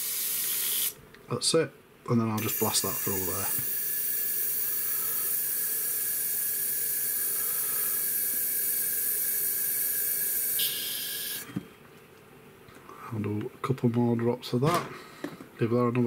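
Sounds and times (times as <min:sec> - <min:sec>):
airbrush hissing: 0:00.0 - 0:01.0, 0:02.4 - 0:11.5.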